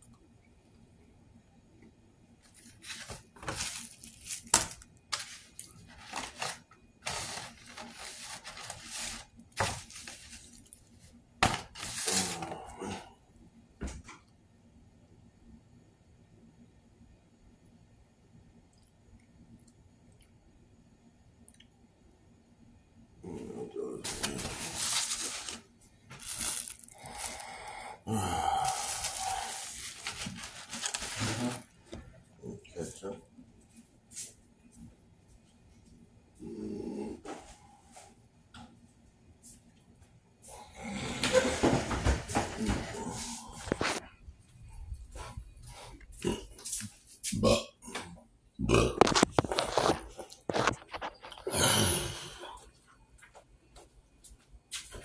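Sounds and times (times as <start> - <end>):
styrofoam scraping and crinkling: 2.5 - 10.8, 11.4 - 12.6, 24.0 - 27.6, 28.6 - 31.8, 49.0 - 51.3.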